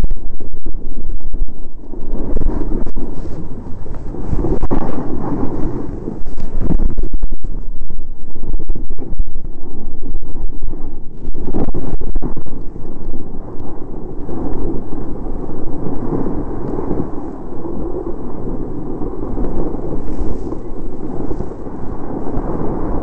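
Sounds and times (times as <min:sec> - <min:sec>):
wind rumbling on microphone: 0:00.0 - 0:23.0
skis scraping on snow: 0:02.5 - 0:06.6, 0:19.8 - 0:23.0.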